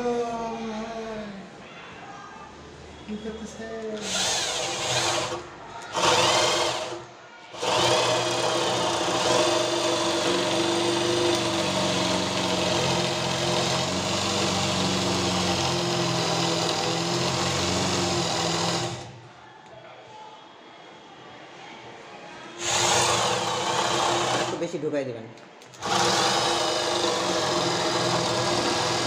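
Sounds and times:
electric drill boring into wood: 4.0 - 7.0, 7.6 - 19.2, 22.6 - 24.6, 25.8 - 29.0.

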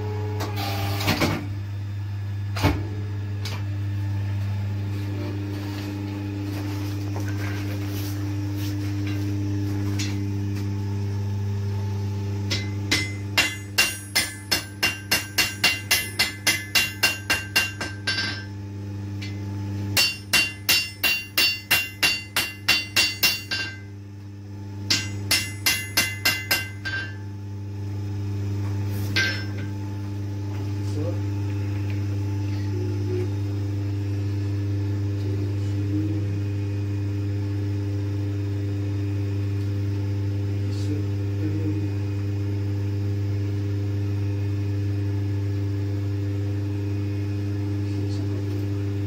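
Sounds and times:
steady low hum: 0.0 - 49.0
hammer ringing on anvil: 12.5 - 18.5, 20.0 - 23.9, 24.9 - 27.2, 29.2 - 29.7.

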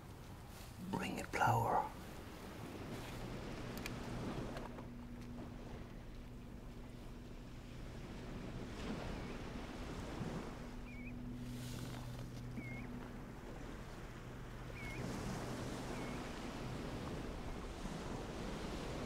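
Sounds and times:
low engine hum: 0.0 - 19.0
wind: 0.0 - 19.0
surf: 6.8 - 19.0
whistled bird call: 10.8 - 11.2, 12.6 - 12.9, 14.8 - 15.1.

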